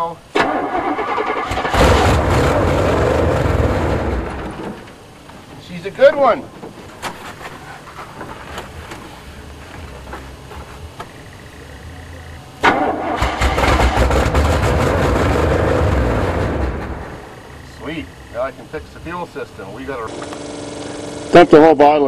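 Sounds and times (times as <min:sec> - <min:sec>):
truck engine starting and running: 0:00.3 - 0:05.0, 0:12.6 - 0:19.0.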